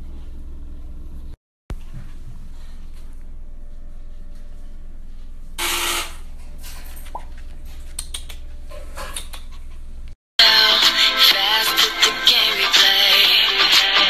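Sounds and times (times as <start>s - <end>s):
steady low hum: 0.0s - 10.2s.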